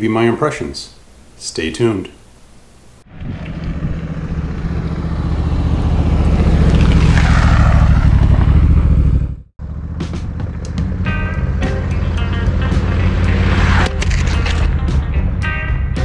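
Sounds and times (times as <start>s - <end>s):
motorcycle engine passing by: 3.0s - 14.0s.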